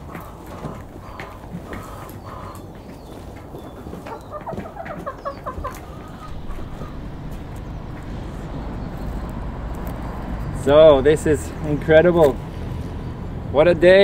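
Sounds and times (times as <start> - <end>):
hens clucking: 0.0 - 11.8
low steady rumble: 5.5 - 14.0.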